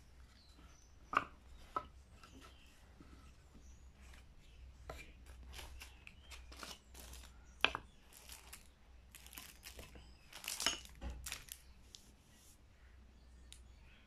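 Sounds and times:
plastic packaging crinkling: 5.4 - 7.4, 8.0 - 12.0.

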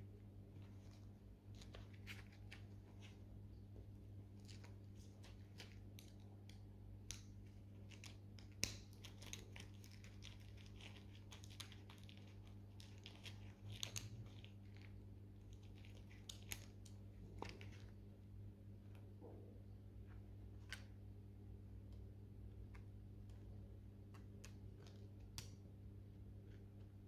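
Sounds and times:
low electrical hum: 0.0 - 27.0
faint clicks and crackles: 4.3 - 18.0, 21.8 - 27.0.

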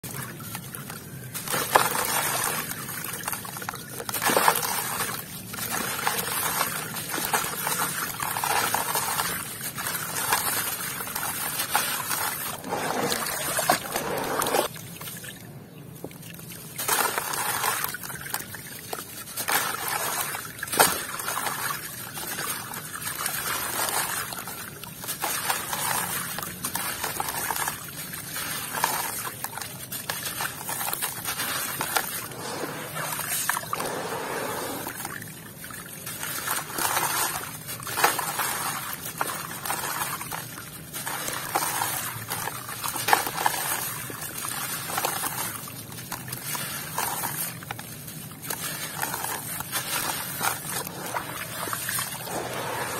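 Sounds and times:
grains and water trickling: 0.0 - 52.9
water sloshing: 0.0 - 52.9.

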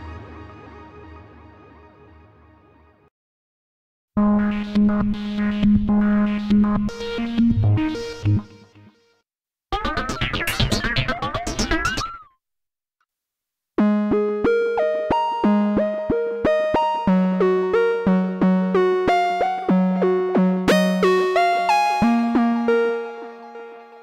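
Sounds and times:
plucky synth sequence: 13.8 - 24.0.

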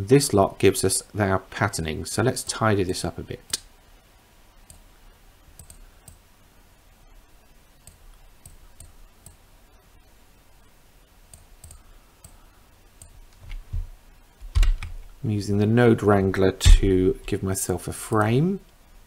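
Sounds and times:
computer mouse clicks: 5.6 - 6.2, 7.8 - 9.4, 11.3 - 12.4.

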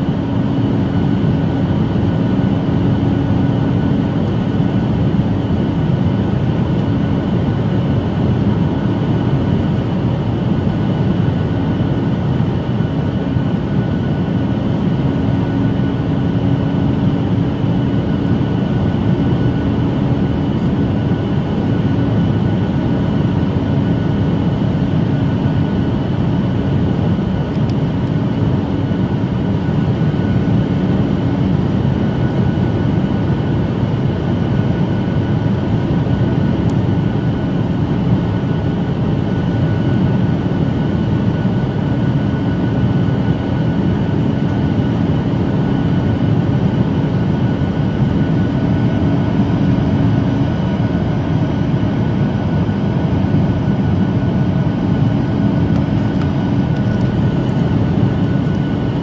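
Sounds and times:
faint steady whine: 0.0 - 59.0
jet engine hum: 0.0 - 59.0.

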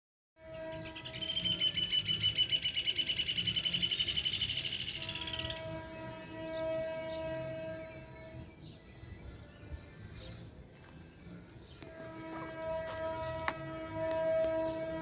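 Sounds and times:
high-pitched pulsing trill: 0.4 - 10.7
distant locomotive horn: 0.4 - 15.0.

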